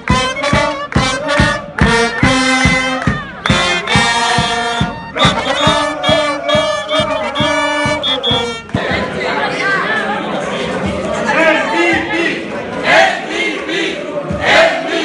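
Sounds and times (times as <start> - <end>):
upbeat music with fast beat: 0.0 - 9.4
crowd singing and shouting: 0.0 - 15.0.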